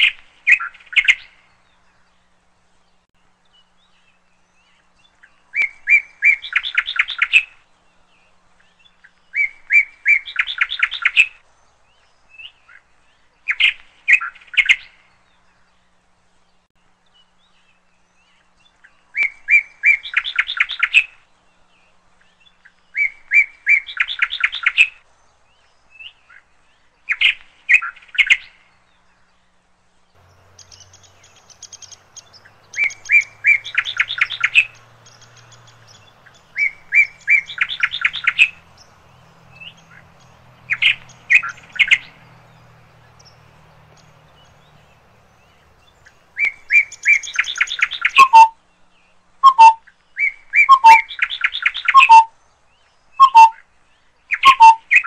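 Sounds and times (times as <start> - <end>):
songbird singing: 0.0 - 55.0
faint low hum and hiss: 28.5 - 50.6.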